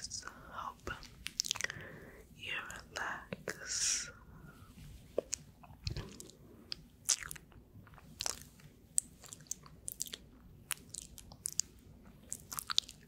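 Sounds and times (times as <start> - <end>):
gum chewing mouth clicks: 0.9 - 1.8, 5.2 - 13.0.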